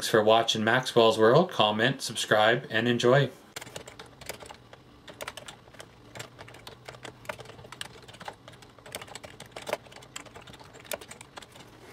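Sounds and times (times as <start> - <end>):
computer keyboard typing: 3.6 - 11.8.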